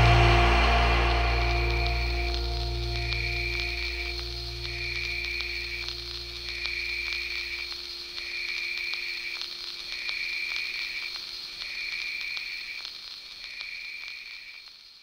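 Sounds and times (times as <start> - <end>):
low drone: 0.0 - 8.4
steady hum-like tone: 0.0 - 9.2.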